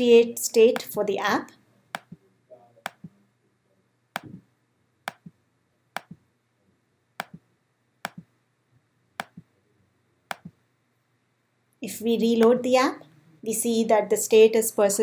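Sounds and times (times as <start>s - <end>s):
computer mouse button clicking: 8.1s - 8.3s.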